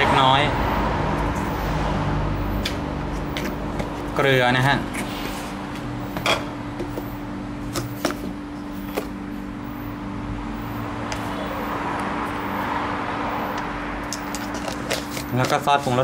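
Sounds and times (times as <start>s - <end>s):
utensils and containers clicking: 13.6s - 16.0s.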